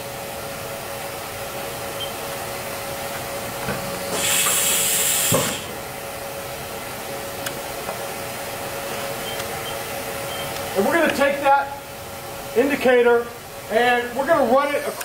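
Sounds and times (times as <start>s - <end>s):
steady machine hum: 0.0s - 15.0s
compressed air hiss: 4.1s - 5.8s.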